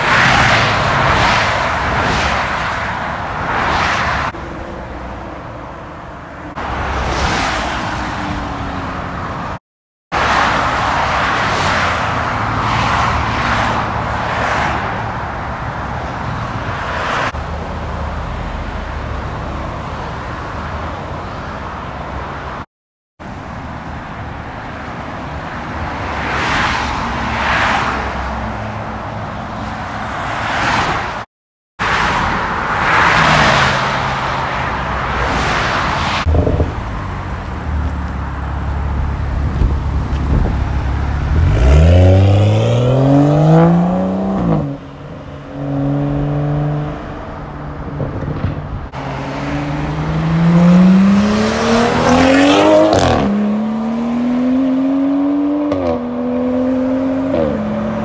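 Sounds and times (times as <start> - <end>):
cars passing at speed: 0.0 - 22.7, 23.3 - 58.0
car engines accelerating: 31.8 - 58.0.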